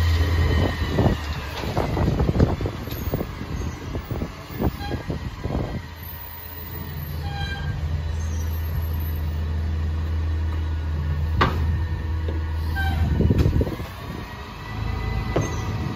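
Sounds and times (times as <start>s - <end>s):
garbage truck engine humming: 0.0s - 15.9s
sharp thump: 11.4s - 11.7s.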